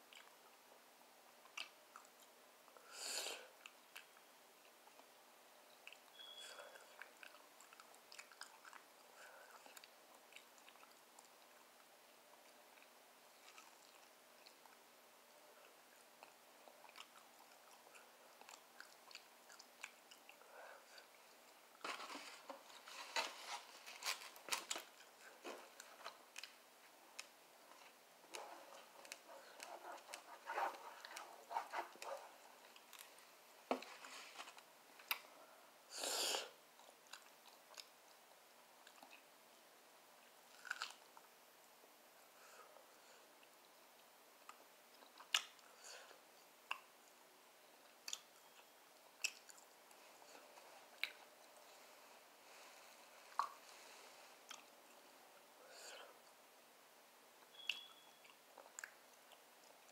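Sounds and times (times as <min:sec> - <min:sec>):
wet chewing: 0:05.8 - 0:11.4, 0:15.6 - 0:21.6, 0:40.5 - 0:41.2, 0:48.0 - 0:49.7, 0:54.3 - 0:54.7
crunchy bites: 0:40.5 - 0:41.0.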